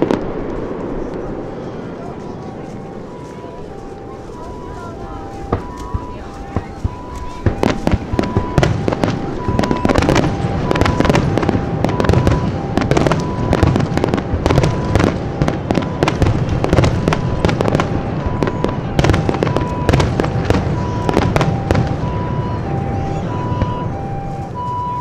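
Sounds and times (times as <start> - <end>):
fireworks bursting: 0.0 - 25.0
two-tone siren: 1.3 - 25.0.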